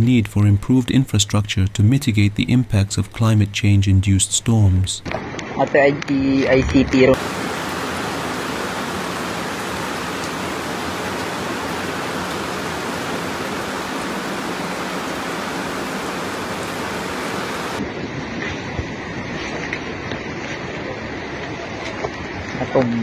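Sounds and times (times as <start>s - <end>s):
rushing floodwater: 6.9s - 23.0s.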